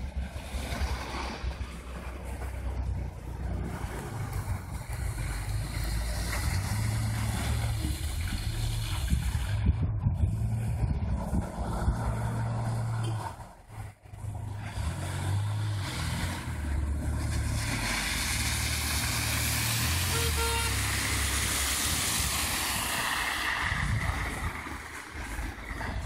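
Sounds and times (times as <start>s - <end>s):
car engine revving: 0.0s - 26.0s
tyres hissing through snow: 17.2s - 25.7s
car horn toot: 20.0s - 21.0s.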